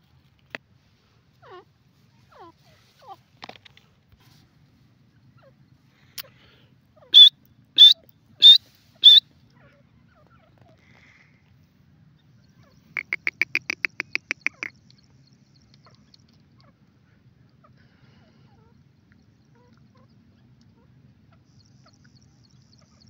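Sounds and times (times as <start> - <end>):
francolin calling: 6.3 - 9.2, 12.4 - 16.7.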